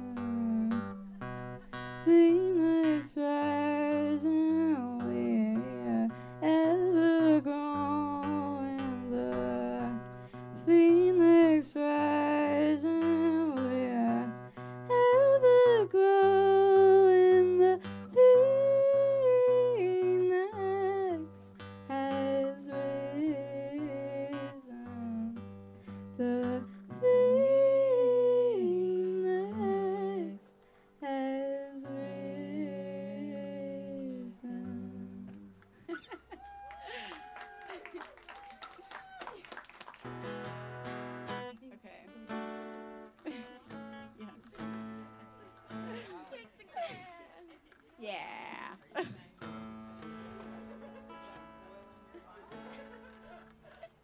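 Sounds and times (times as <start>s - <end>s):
woman humming: 0.0s - 1.1s, 43.2s - 49.4s
strummed acoustic guitar: 0.0s - 36.1s, 40.0s - 47.2s, 48.5s - 54.0s.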